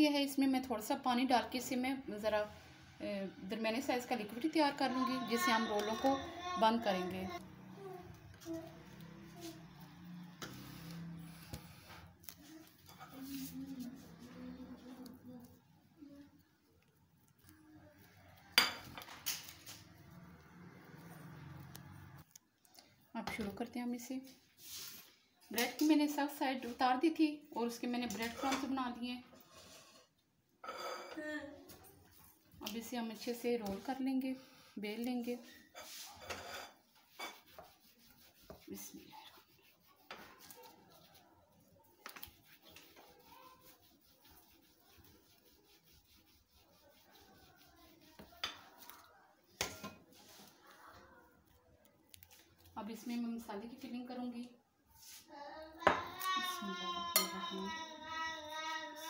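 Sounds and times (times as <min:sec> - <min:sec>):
rolling pin rubbing: 0:32.8 - 0:50.6.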